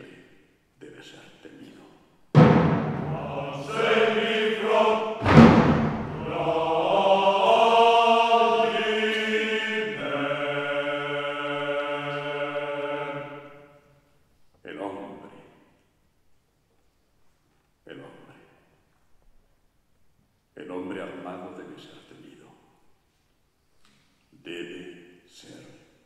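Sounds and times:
orchestra struck chords: 2.4 - 7.2
choir singing held notes: 2.4 - 13.8.

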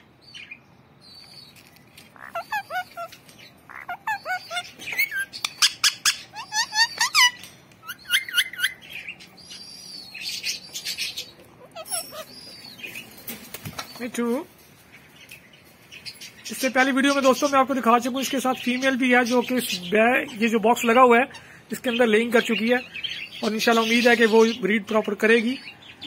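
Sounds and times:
parakeet chirps and squawks: 0.3 - 13.1.

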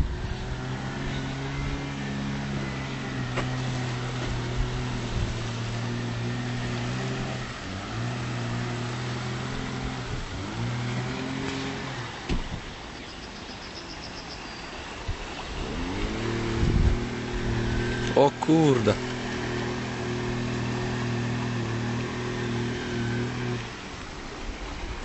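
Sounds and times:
engine running: 0.0 - 13.0, 14.7 - 25.0.

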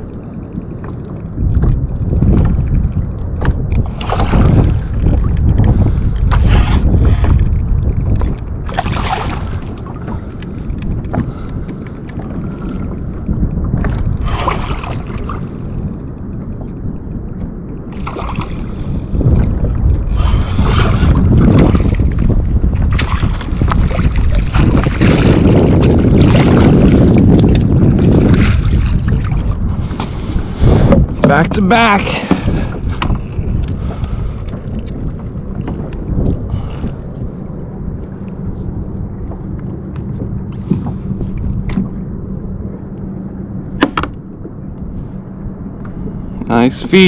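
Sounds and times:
knocks and clicks of gear: 0.0 - 8.9, 9.6 - 14.4, 15.2 - 20.8, 39.3 - 42.0, 43.8 - 44.6
wind buffeting microphone: 0.0 - 47.0.

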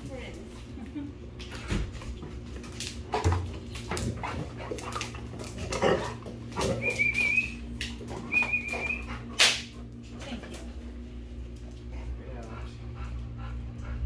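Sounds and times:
dogs scuffling on hard floor: 1.4 - 12.8
dog whining: 5.7 - 9.3.

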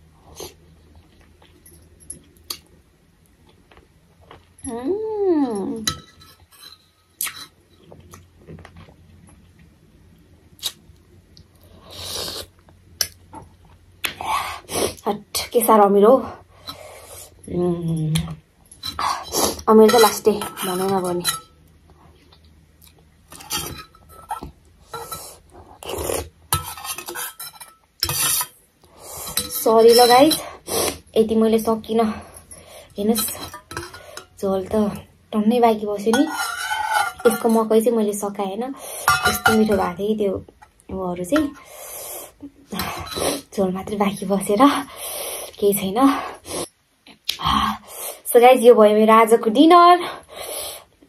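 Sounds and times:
metal spoon scraping steel bowl: 18.8 - 21.6, 23.3 - 25.4, 26.5 - 28.6, 29.2 - 30.6, 32.4 - 34.4, 36.0 - 37.8, 39.0 - 40.0, 42.8 - 43.5.

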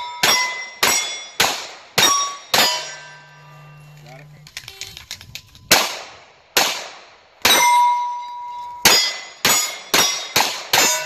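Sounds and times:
steel plates ringing: 0.0 - 1.4, 2.0 - 4.8, 7.5 - 11.0
gunshots: 0.2 - 3.0, 5.7 - 7.7, 8.8 - 11.0.

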